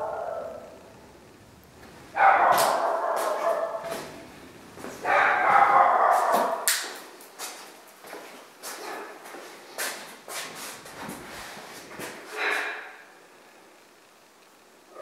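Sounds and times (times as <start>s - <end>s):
dog barking: 0.0s - 0.8s, 2.1s - 4.2s, 5.0s - 6.7s.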